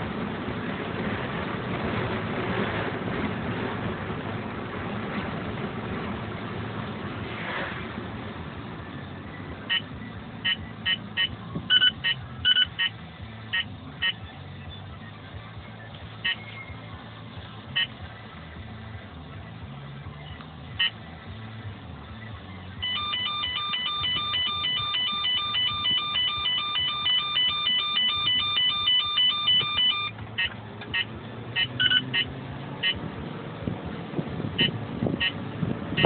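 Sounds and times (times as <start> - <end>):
radar detector rapid beeping alert: 9.7 - 12.9, 22.8 - 33.0, 34.6 - 35.4
short single beeps: 22.8 - 33.0.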